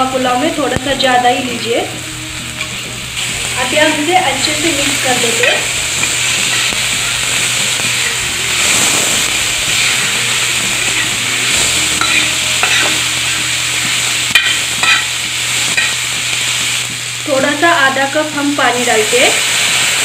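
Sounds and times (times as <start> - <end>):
vegetables sizzling in butter: 0.0 - 20.0
metal spatula scraping pan: 3.7 - 16.1.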